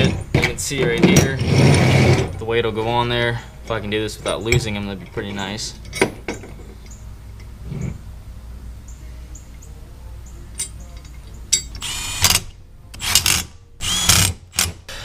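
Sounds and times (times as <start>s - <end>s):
power driver whirring: 11.8s - 15.0s.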